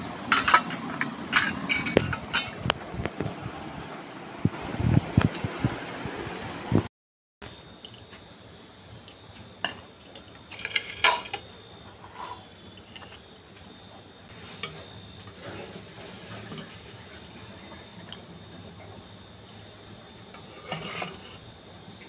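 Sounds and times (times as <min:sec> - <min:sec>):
metal tableware clinking on plate: 0:00.3 - 0:02.6, 0:09.6 - 0:13.8, 0:20.4 - 0:21.4.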